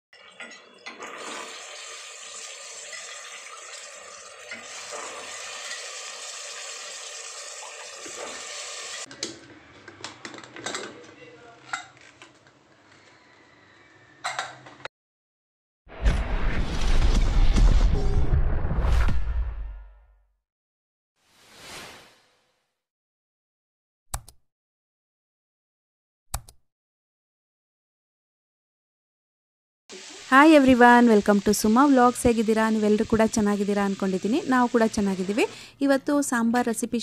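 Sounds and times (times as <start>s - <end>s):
vegetables sizzling in hot oil: 1.0s - 9.1s, 29.9s - 35.6s.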